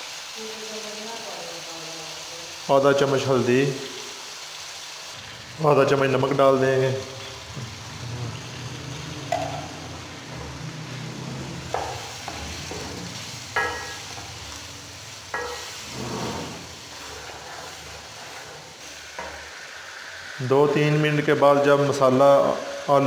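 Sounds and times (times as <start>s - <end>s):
potatoes sizzling in hot oil: 0.0s - 23.0s
wooden spoon scraping and knocking pan: 9.2s - 19.5s.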